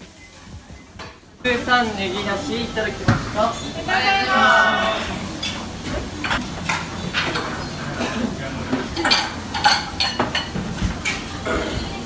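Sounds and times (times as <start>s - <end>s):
crockery bowls and utensils clinking: 5.4s - 12.0s.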